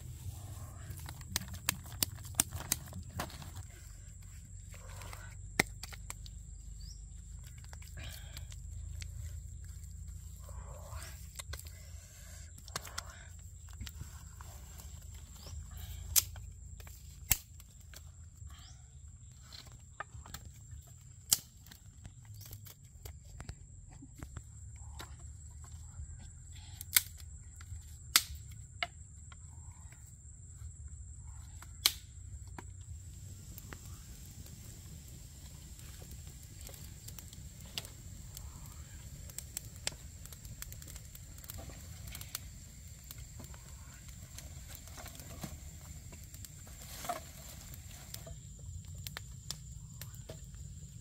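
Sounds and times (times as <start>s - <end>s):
low steady rumble: 0.0s - 15.9s
hands scraping earth: 0.0s - 17.4s.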